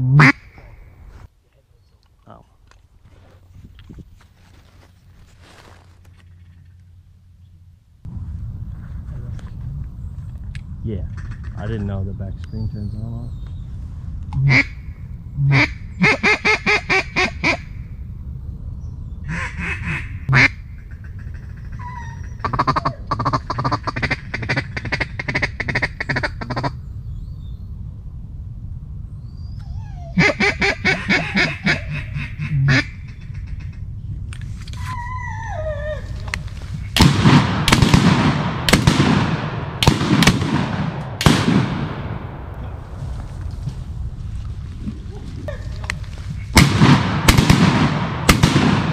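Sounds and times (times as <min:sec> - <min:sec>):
duck call quacks: 0:00.1 - 0:00.5, 0:19.3 - 0:26.7, 0:30.2 - 0:33.8
shotgun shots echoing: 0:37.0 - 0:43.0, 0:46.5 - 0:48.9.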